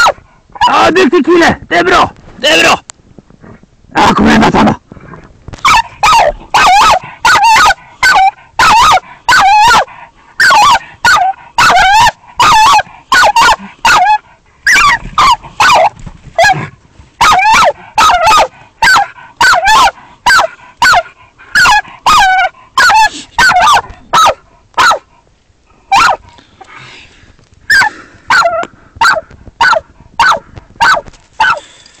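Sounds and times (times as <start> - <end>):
dog barking: 0.0 - 0.8, 5.6 - 16.6, 17.2 - 25.1, 25.9 - 26.2, 27.7 - 31.6.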